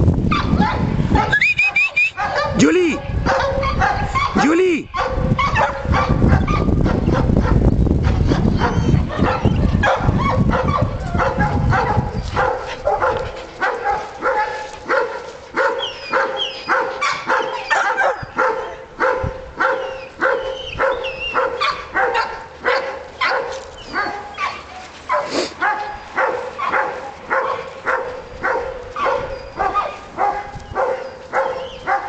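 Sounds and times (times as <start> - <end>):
dogs whining and yipping: 0.3 - 2.6, 3.2 - 4.4, 5.0 - 18.8, 19.6 - 32.0
heavy rumble on microphone: 5.2 - 13.6.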